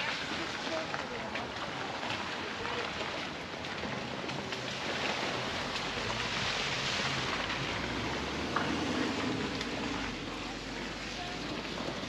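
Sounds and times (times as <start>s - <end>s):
water rushing through stream: 0.0s - 12.0s.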